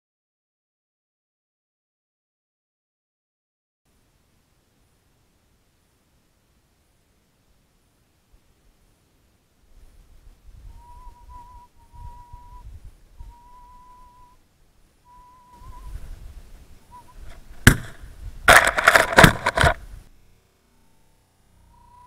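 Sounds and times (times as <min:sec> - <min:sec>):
thin whistle-like tone: 0:10.6 - 0:14.4, 0:15.0 - 0:16.1, 0:16.8 - 0:17.3, 0:20.7 - 0:22.0
rustling: 0:15.6 - 0:20.1
loud sharp cracks and knocks: 0:17.6 - 0:19.8.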